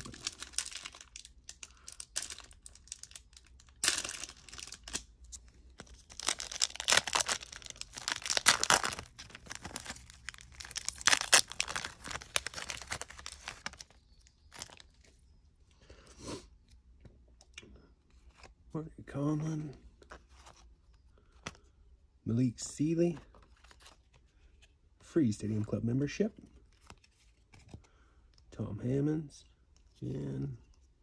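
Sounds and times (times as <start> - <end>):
foil wrapper crinkling and tearing: 0.0 - 14.9.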